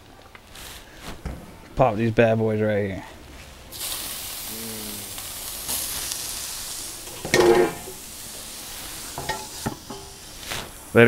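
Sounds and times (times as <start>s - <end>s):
fish fillets sizzling on griddle: 3.7s - 11.0s.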